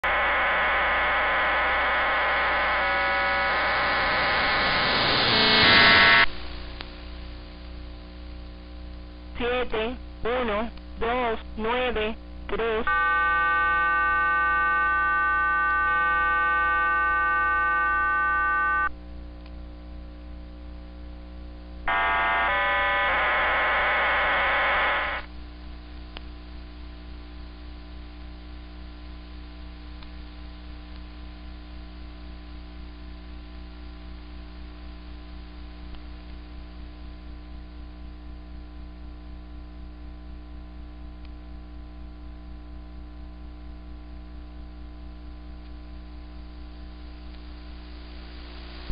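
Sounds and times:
radio carrier hum: 0.0 - 6.3, 9.3 - 18.9, 21.9 - 25.3
radio multi-pitch tone: 0.0 - 6.6, 9.4 - 18.9, 21.9 - 25.3.

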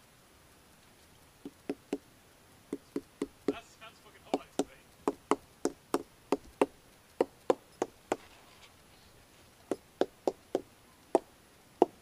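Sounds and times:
hammer knocking on tree trunk: 1.4 - 2.0, 2.7 - 3.6, 4.3 - 8.2, 9.7 - 12.0.

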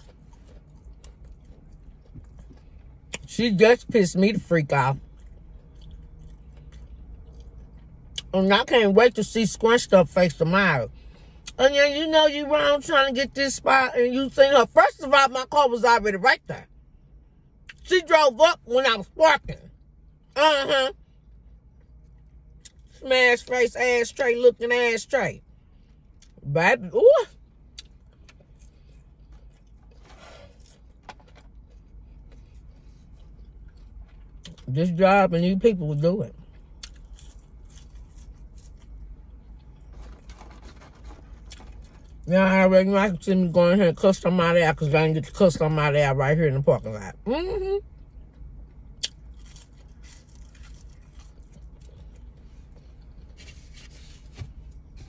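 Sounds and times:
faint chewing: 0.0 - 3.3, 5.0 - 8.3, 27.7 - 34.7, 36.4 - 42.3, 48.3 - 55.0.

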